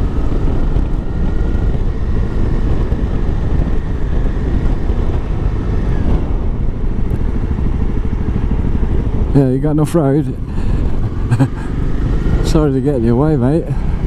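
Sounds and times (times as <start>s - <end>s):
motorcycle engine running: 0.0s - 14.0s
wind rumble on microphone: 0.0s - 14.0s.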